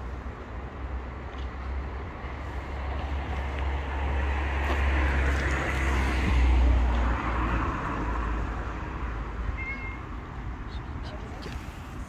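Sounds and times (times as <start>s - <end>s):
car passing by: 1.6s - 9.4s.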